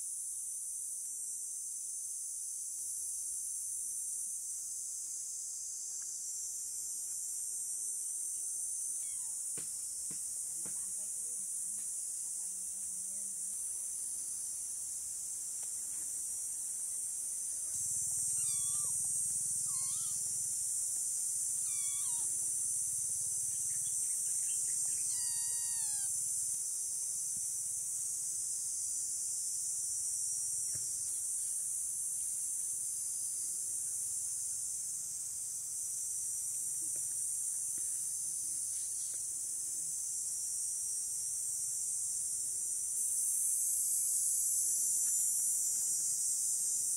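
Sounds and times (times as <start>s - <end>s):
insects droning: 0.0s - 46.9s
kitten mewing: 9.0s - 9.4s, 18.3s - 20.3s, 21.6s - 22.3s, 25.0s - 26.1s.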